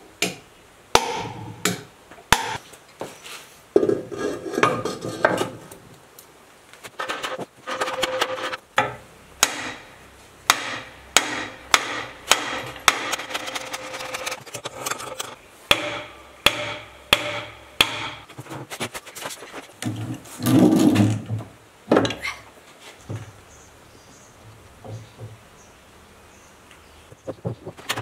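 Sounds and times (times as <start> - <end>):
hammer tapping metal: 10.5 - 14.2, 14.8 - 18.3.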